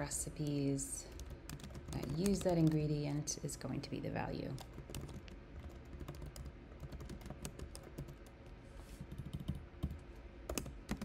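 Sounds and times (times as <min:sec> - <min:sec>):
typing on computer keyboard: 0:01.1 - 0:02.9, 0:04.5 - 0:08.4, 0:09.0 - 0:11.0.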